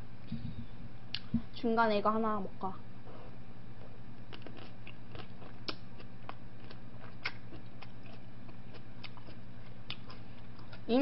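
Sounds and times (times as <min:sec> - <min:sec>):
steady low hum: 0:00.0 - 0:11.0
person chewing food: 0:04.2 - 0:10.9.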